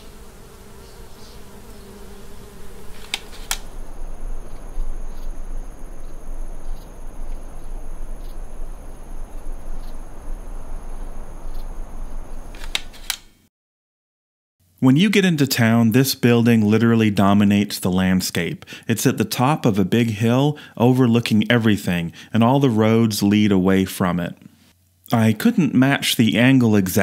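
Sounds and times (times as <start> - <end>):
hiss: 0.0 - 12.8
high insect whine: 0.0 - 13.1
insects buzzing: 0.0 - 13.1
sharp clicks: 3.0 - 3.7.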